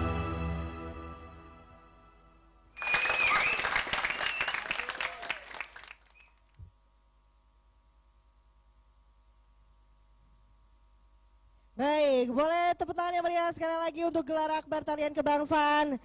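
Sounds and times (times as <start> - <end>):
music: 0.0 - 2.8
audience applause and cheers: 2.8 - 6.2.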